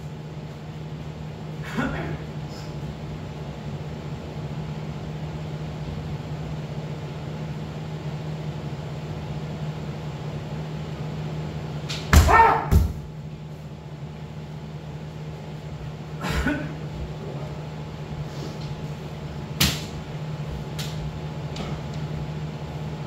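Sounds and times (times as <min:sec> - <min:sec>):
steady low hum: 0:00.0 - 0:23.0
bamboo swords hitting armour: 0:12.1 - 0:13.1
person shouting: 0:12.2 - 0:13.0.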